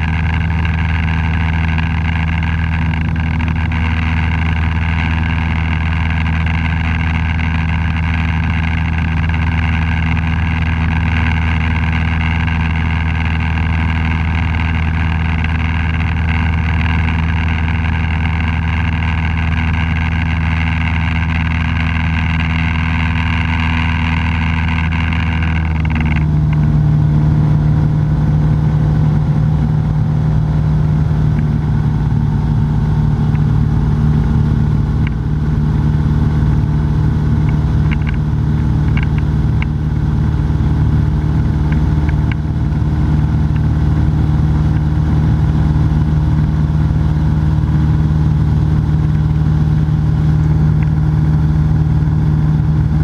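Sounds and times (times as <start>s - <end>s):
aircraft engine and propeller droning: 0.0s - 53.0s.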